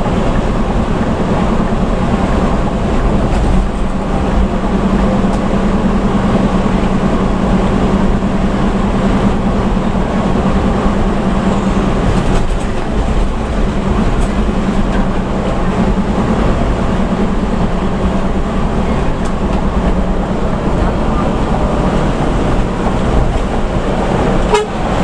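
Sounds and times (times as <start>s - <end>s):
bus engine drone: 0.0s - 25.0s
road rumble: 0.0s - 25.0s.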